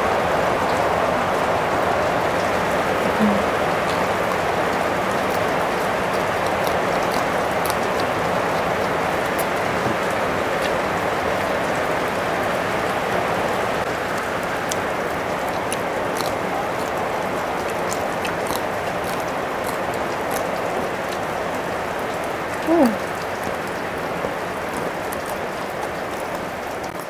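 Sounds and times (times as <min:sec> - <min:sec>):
chewing clicks: 0:03.1 - 0:11.6, 0:14.1 - 0:21.6, 0:22.6 - 0:27.0.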